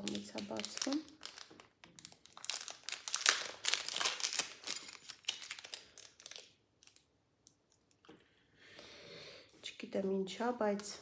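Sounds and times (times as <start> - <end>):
plastic packaging crinkling: 0.0 - 7.1.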